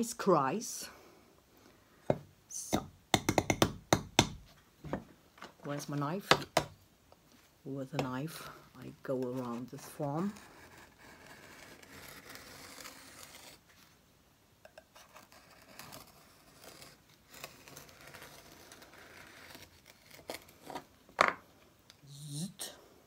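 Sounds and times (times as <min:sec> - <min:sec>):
knife cutting through clay: 0:09.2 - 0:13.6, 0:14.9 - 0:20.9.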